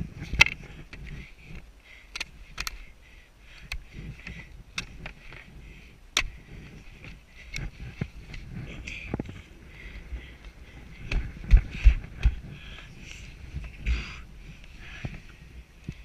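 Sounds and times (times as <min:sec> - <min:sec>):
skis knocking and scraping on snow: 0:11.0 - 0:16.0.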